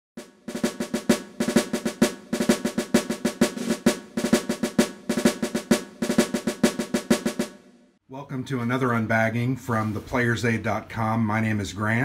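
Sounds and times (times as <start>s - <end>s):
snare drum rolls: 0.2s - 7.7s.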